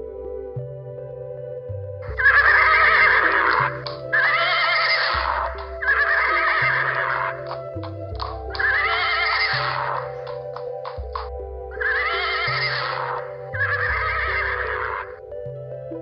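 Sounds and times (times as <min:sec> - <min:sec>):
background music low notes: 0:00.0 - 0:16.0
horse neighing: 0:02.1 - 0:10.4, 0:11.8 - 0:15.2.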